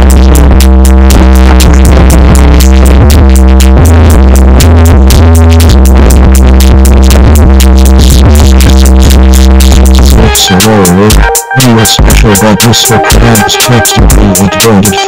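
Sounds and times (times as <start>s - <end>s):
heavy sustained bass: 0.0s - 10.3s
drum machine beat: 0.0s - 15.0s
fast hi-hat clicks: 0.0s - 15.0s
held synth chords: 0.0s - 15.0s.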